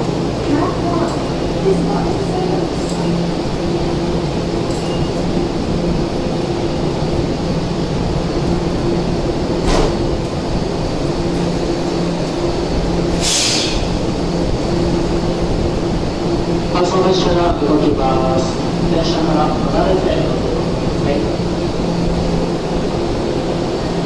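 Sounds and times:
subway train equipment humming: 0.0 - 24.0
hiss of released air: 13.1 - 14.0.

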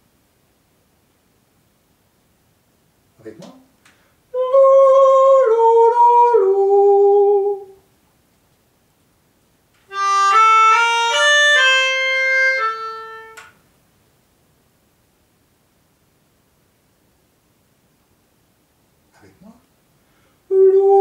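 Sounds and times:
melodica melody: 9.9 - 13.6.

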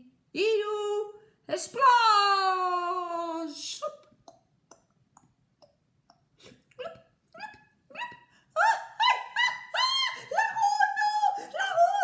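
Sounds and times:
soft mouth pops: 4.0 - 8.2.

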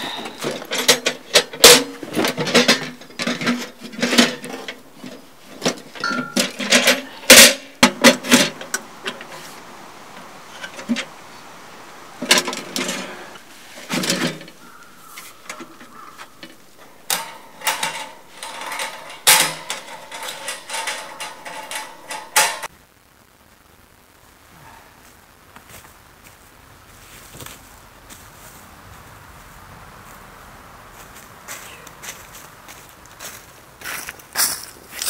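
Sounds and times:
sheet metal clanking and rattling: 0.0 - 9.6, 12.2 - 22.7
faint background noise: 0.0 - 35.0.

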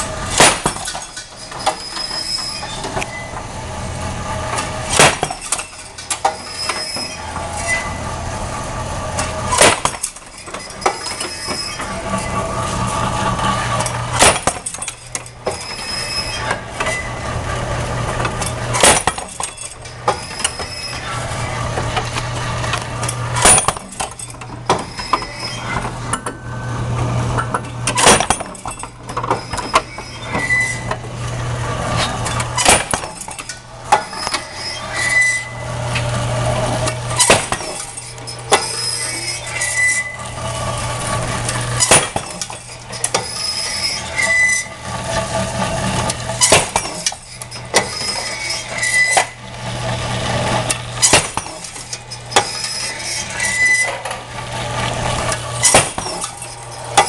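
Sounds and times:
metallic clanks and rattles: 0.0 - 3.1, 4.5 - 7.8, 9.1 - 17.0, 18.0 - 26.4, 27.3 - 31.0, 31.9 - 35.3, 36.6 - 49.4, 50.5 - 54.2, 55.2 - 57.0
machine drive hum: 0.0 - 57.0
short high squeak: 0.9 - 3.4, 5.4 - 8.1, 9.5 - 12.8, 14.6 - 17.3, 19.4 - 21.6, 23.4 - 25.8, 29.2 - 31.0, 34.0 - 35.6, 37.2 - 40.3, 41.8 - 44.8, 46.4 - 49.4, 51.0 - 54.0.

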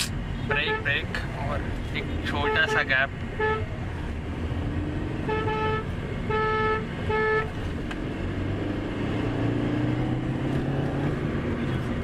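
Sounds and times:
traffic and engine rumble: 0.0 - 12.0
vehicle horn blasts: 0.4 - 1.0, 2.4 - 3.7, 5.2 - 7.6.

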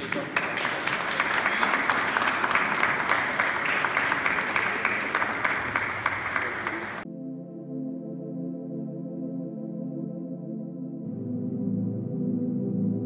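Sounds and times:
crowd clapping: 0.0 - 7.0
soft ambient music: 7.0 - 13.0.

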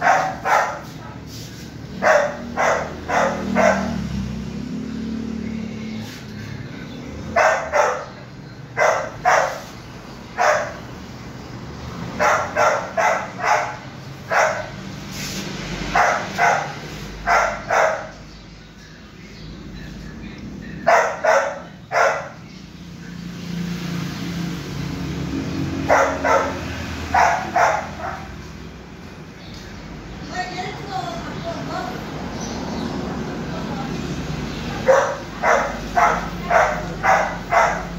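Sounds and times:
puppy barking: 0.0 - 1.3, 1.9 - 4.8, 7.2 - 10.9, 12.1 - 15.1, 15.9 - 18.3, 20.8 - 22.5, 25.7 - 28.6, 34.7 - 37.9.

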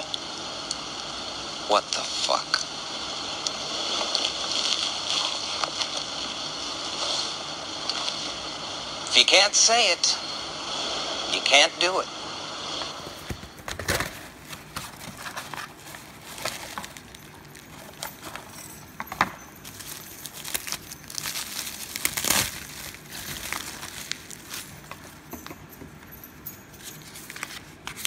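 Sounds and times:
bubble wrap crinkling: 12.9 - 25.7, 26.7 - 28.0.

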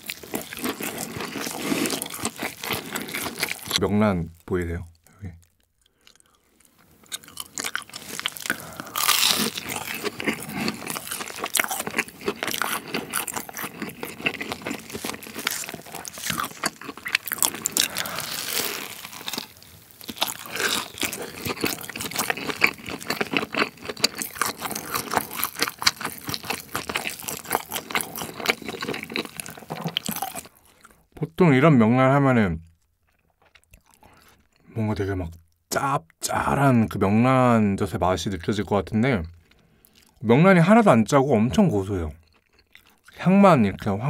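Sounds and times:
crunching bites and chewing: 0.0 - 3.8, 5.4 - 31.0, 32.6 - 34.7, 42.2 - 43.2.

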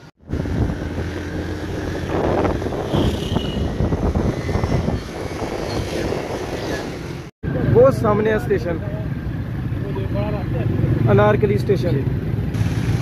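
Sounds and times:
road and wind noise: 0.0 - 13.0
engine drone: 12.4 - 13.0.

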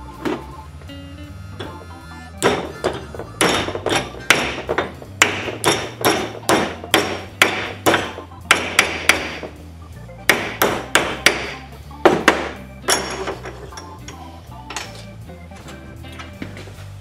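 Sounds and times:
hammer striking sheet metal: 2.4 - 9.5, 10.3 - 13.3.

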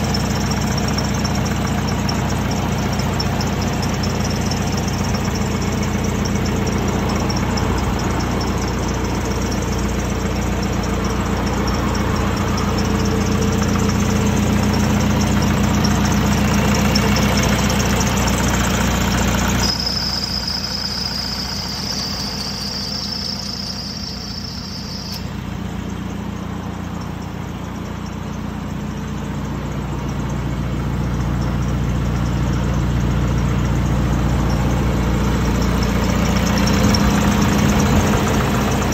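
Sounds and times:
high whistle: 0.0 - 28.5
diesel engine idling: 0.0 - 38.9.

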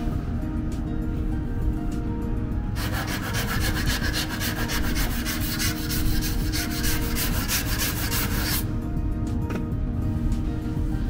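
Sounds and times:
sanding block rasping: 2.8 - 8.6.

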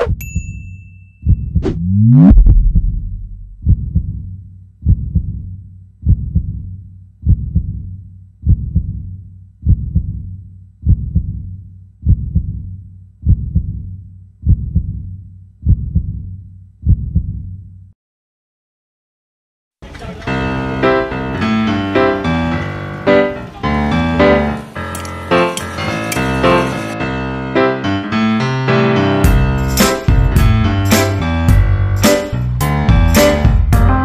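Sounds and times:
deep low thuds: 1.3 - 17.6.

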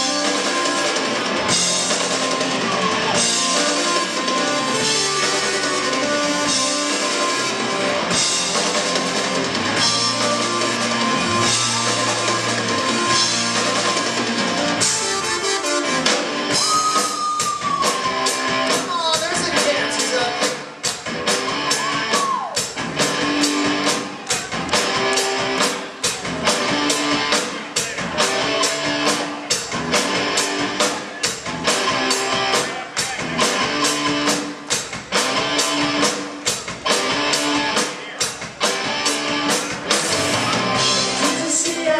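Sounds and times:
lead guitar line sliding down: 0.0 - 18.6
live rock band: 0.0 - 41.9.

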